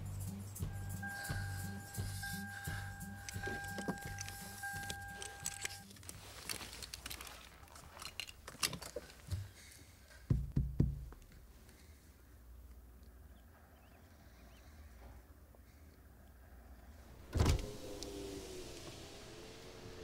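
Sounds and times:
rustling: 0:00.9 - 0:10.3
seatbelt buckling clicks: 0:02.7 - 0:07.2
dull heavy thumps: 0:10.3 - 0:11.2.

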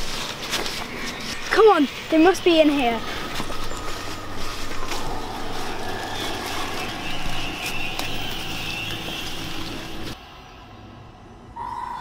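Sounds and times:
handheld camera rustle: 0:00.0 - 0:01.6, 0:03.0 - 0:08.1
footsteps crunching through dry leaves: 0:00.0 - 0:10.2
steady noisy rumble: 0:00.0 - 0:11.6.

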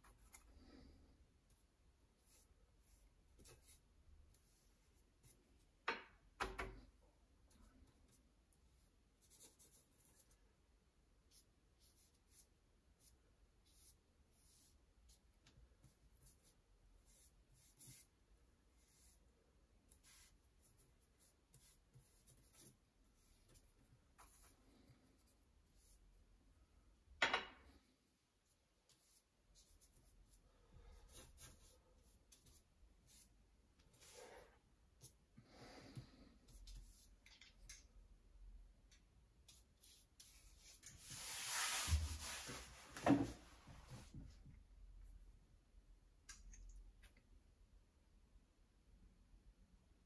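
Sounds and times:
paintbrush strokes on paper: 0:00.0 - 0:05.8, 0:07.4 - 0:10.4, 0:11.2 - 0:26.2, 0:28.1 - 0:37.2, 0:39.4 - 0:44.2.

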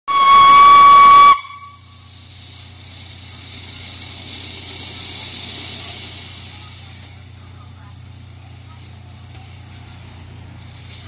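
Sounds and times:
steam whistle: 0:00.1 - 0:02.0
steam hissing: 0:00.1 - 0:11.0.

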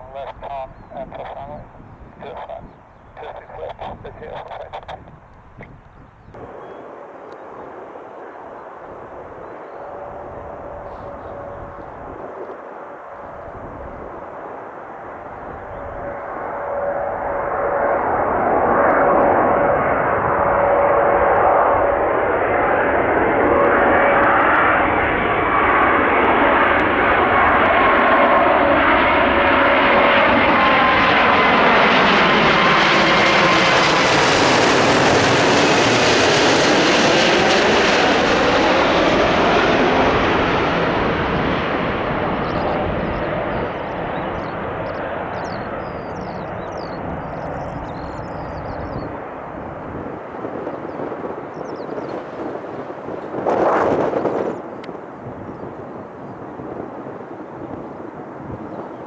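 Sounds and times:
jet airliner passing overhead: 0:00.0 - 0:59.0.

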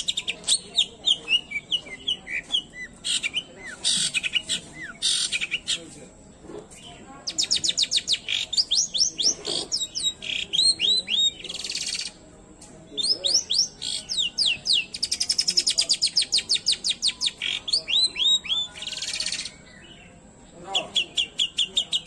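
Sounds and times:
bird singing sharp high chirps: 0:00.0 - 0:05.9, 0:06.8 - 0:12.2, 0:13.0 - 0:22.0
harsh scratchy bird note: 0:09.2 - 0:09.9
whistled bird notes: 0:13.0 - 0:20.1.

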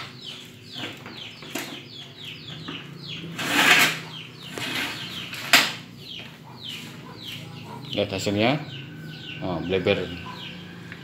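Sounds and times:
chickens chirping: 0:00.0 - 0:11.0.

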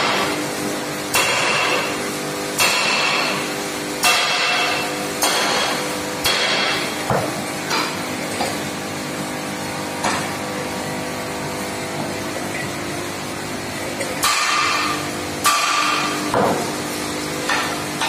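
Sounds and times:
steady hum: 0:00.0 - 0:18.0
sledgehammer striking metal: 0:01.1 - 0:01.9, 0:02.6 - 0:03.4, 0:04.0 - 0:08.0, 0:14.2 - 0:16.7.

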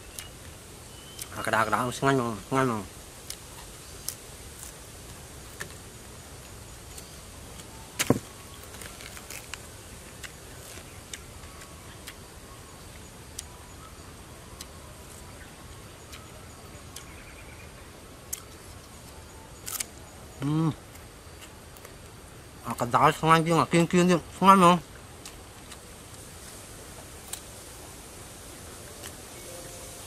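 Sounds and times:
crunchy eating: 0:03.1 - 0:17.2, 0:18.2 - 0:22.9, 0:24.8 - 0:29.6.

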